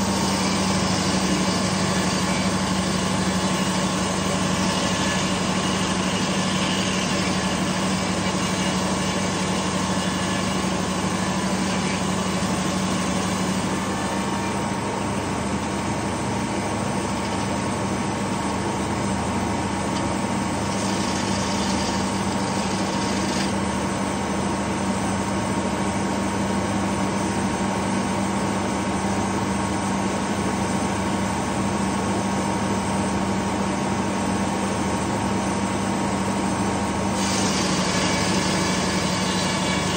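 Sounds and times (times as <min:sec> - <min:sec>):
circular saw blade cutting log: 0:00.0 - 0:24.0, 0:37.1 - 0:39.9.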